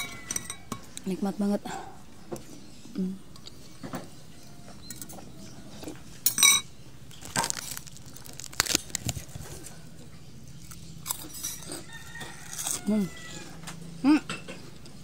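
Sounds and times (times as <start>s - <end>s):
spoon clinking against bowl: 0.0s - 0.9s.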